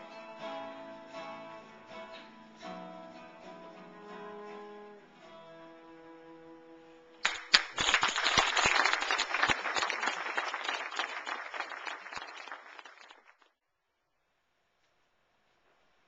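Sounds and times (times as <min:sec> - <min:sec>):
crowd applauding: 0:07.2 - 0:13.5.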